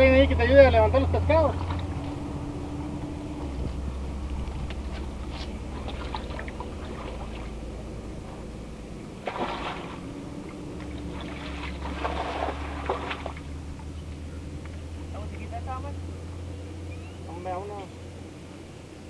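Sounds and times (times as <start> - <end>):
steady low hum: 0.0 - 19.0
river water splashing on rocks: 5.7 - 7.7, 9.2 - 13.6.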